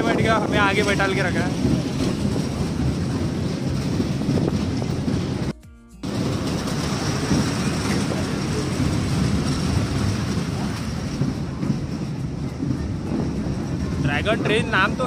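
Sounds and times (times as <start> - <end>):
amusement ride train rumbling: 0.0 - 15.0.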